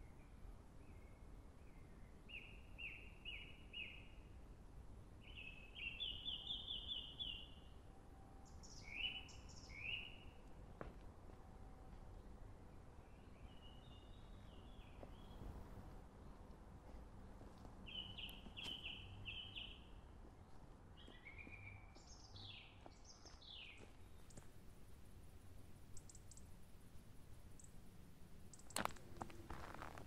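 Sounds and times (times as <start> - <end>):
songbird singing: 0.0 - 30.0
background hiss: 22.1 - 30.0.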